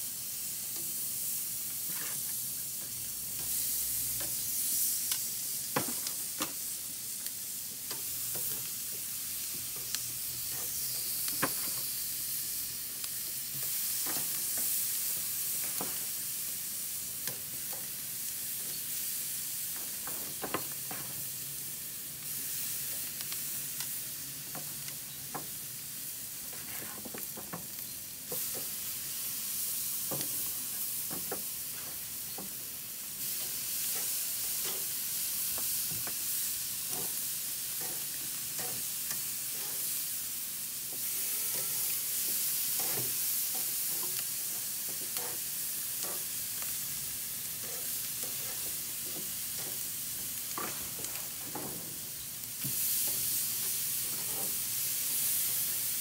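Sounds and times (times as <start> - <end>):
chicken sizzling on grill: 0.0 - 56.0
metal tongs clicking on grate: 33.9 - 35.0, 37.8 - 39.8.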